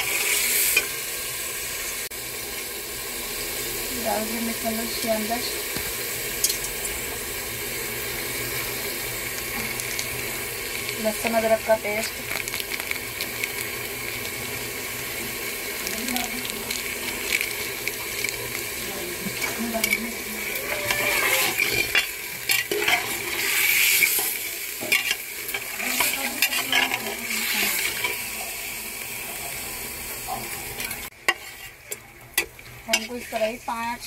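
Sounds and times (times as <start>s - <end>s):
meat sizzling in hot oil: 0.0s - 34.0s
metal spoon scraping a pot: 19.4s - 28.2s, 30.9s - 33.4s.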